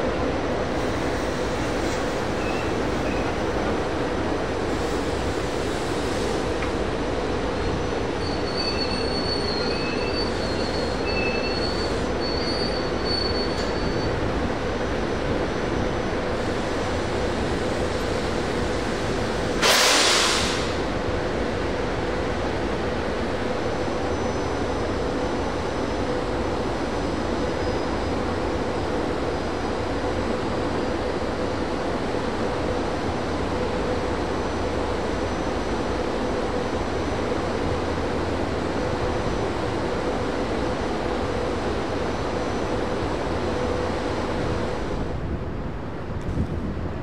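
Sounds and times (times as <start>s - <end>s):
train wheels rumbling on rail: 0.0s - 47.0s
loud hiss: 19.6s - 20.8s.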